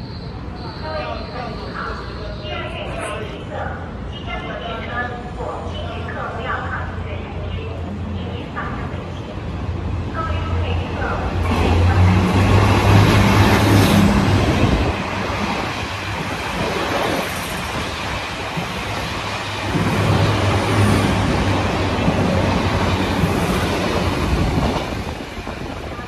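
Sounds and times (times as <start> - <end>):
train wheels rumbling on rails: 9.3 - 26.0.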